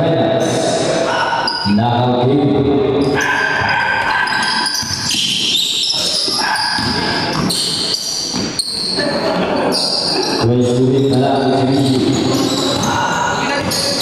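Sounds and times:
voices echoing in hall: 0.0s - 14.0s
sneaker squeaks: 3.0s - 10.4s, 11.0s - 14.0s
basketball bouncing: 4.4s - 8.8s, 11.8s - 14.0s.

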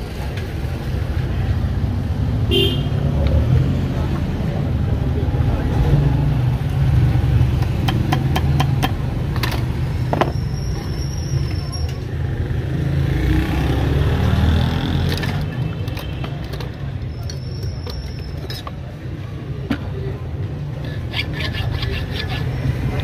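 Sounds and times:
low rumble of road traffic: 0.0s - 23.0s.

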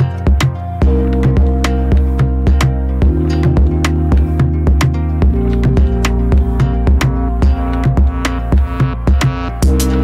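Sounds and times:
music with steady drum beat: 0.0s - 10.0s.

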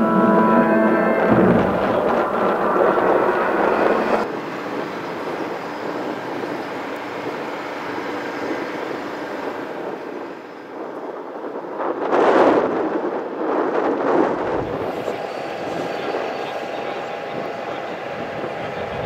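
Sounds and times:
background music: 0.0s - 6.5s
tugboat engine droning: 0.0s - 12.1s, 14.2s - 19.0s.

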